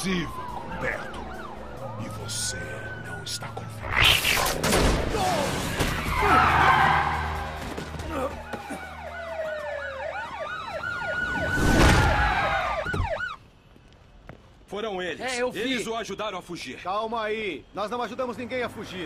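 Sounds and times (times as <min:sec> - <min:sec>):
sirens wailing and yelping: 0:00.0 - 0:13.4
loud rushes of noise: 0:03.8 - 0:04.6.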